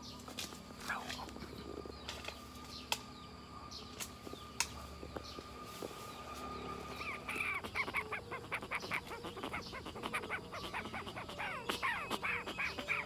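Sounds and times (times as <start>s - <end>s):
birds squawking: 6.4s - 13.0s.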